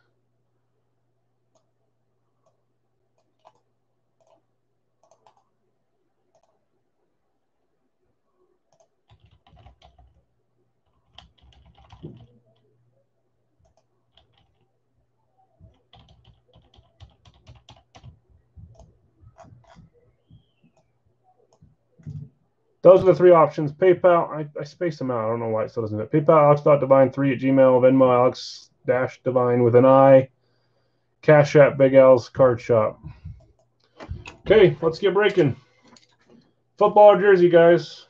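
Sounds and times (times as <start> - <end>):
typing on computer keyboard: 3.2 - 4.4, 5.0 - 5.5, 8.7 - 10.2, 10.8 - 12.6, 13.6 - 14.7, 15.6 - 20.0.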